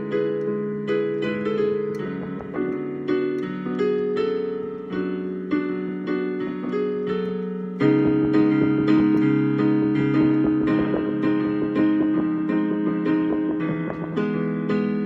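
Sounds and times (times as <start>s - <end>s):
keyboard chords: 0.0s - 15.0s
deep bass note: 2.2s - 2.8s, 7.9s - 14.5s.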